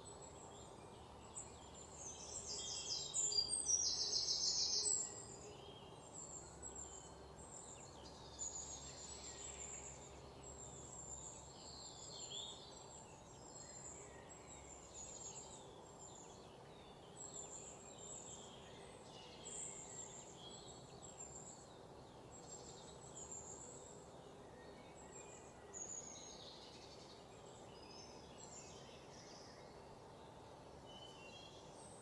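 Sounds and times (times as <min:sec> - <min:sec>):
faint bird chirping: 0:00.0 - 0:32.0
low background noise: 0:00.0 - 0:32.0.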